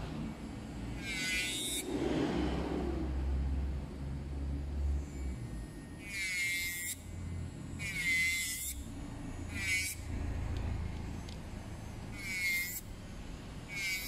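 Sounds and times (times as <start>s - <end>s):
electric nail drill whining: 0.9s - 2.0s, 5.1s - 12.9s, 13.6s - 14.0s.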